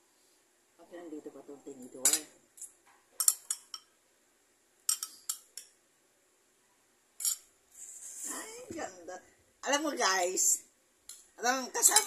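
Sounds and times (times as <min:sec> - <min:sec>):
cutlery clinking on ceramic bowl: 0:02.0 - 0:03.9, 0:04.9 - 0:05.7, 0:07.2 - 0:07.5.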